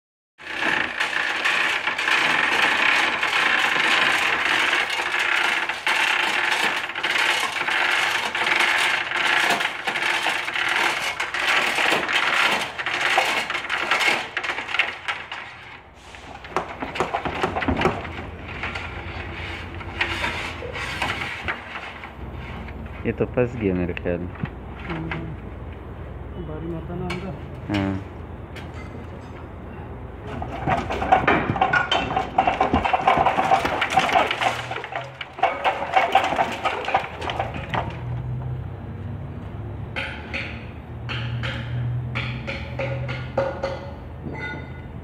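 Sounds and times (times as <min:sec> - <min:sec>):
chain hoist chain clinking: 0:00.5 - 0:15.7.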